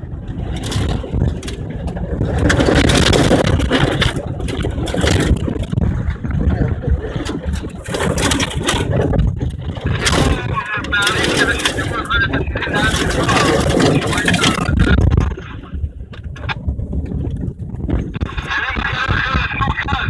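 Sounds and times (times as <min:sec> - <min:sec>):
car engine under load: 0:00.0 - 0:19.3
tyres crunching over gravel: 0:00.3 - 0:15.2.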